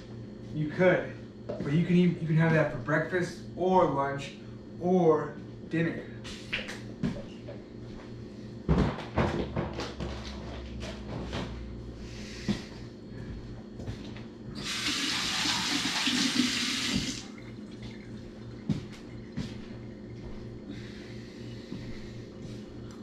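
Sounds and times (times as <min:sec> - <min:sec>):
dishes knocking and clattering: 0:08.7 - 0:10.0
kitchen tap running: 0:14.6 - 0:19.4.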